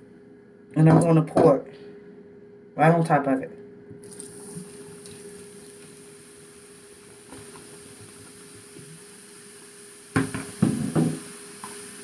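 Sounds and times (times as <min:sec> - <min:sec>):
fizzing hiss: 0:04.0 - 0:12.0.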